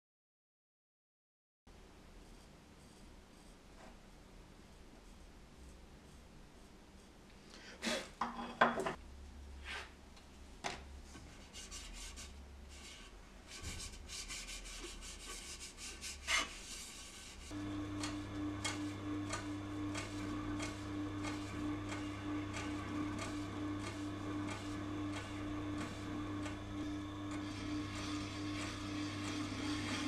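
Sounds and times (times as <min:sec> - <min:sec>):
rubbing and handling: 0:11.1 - 0:17.6
sharpener motor humming: 0:17.5 - 0:30.0.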